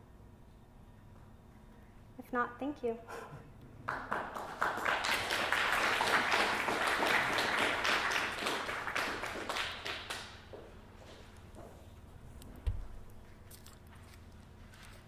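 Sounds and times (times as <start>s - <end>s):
audience applauding: 3.8s - 10.6s.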